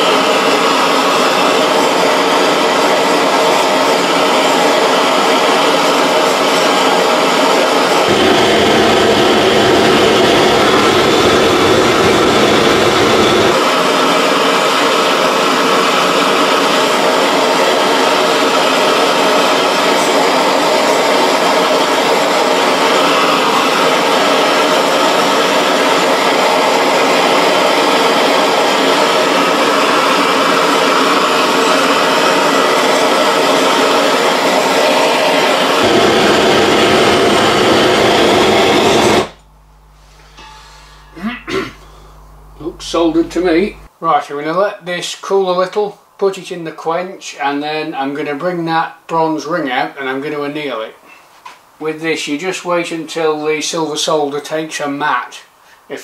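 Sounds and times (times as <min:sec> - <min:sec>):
blowtorch roaring: 0:00.0 - 0:43.9
deep rumble: 0:08.1 - 0:13.6.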